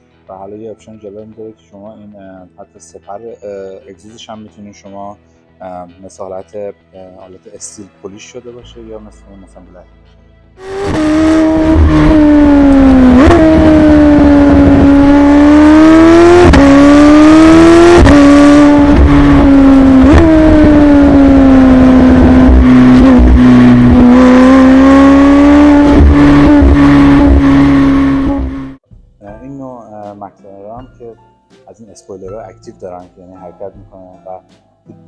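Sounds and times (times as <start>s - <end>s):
car exhaust engine note: 10.6s - 28.8s.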